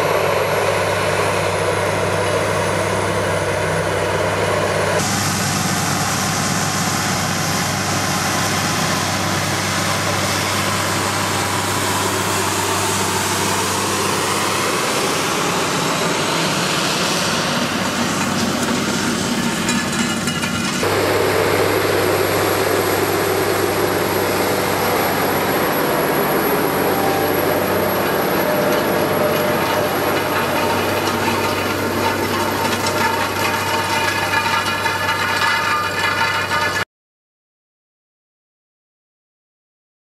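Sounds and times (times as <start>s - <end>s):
tractor diesel engine under load: 0.0s - 36.9s
cultivator tines rattling: 26.5s - 36.8s.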